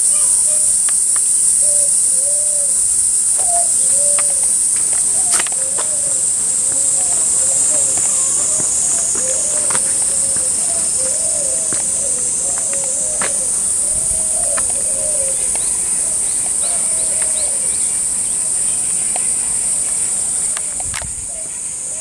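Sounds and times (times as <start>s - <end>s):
cicadas droning: 0.0s - 22.0s.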